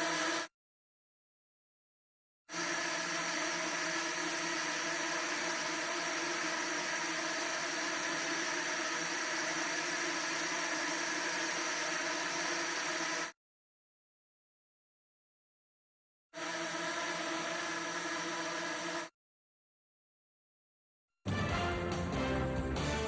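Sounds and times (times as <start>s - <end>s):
small drone rotors whirring: 0.0s - 0.5s, 2.5s - 13.4s, 16.4s - 19.1s.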